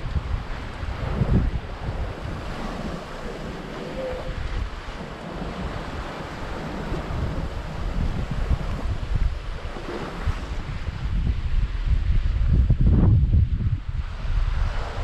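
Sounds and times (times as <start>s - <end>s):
breaking seas: 0.0s - 11.1s
water rushing along hull: 0.0s - 15.0s
wind buffeting microphone: 0.0s - 15.0s.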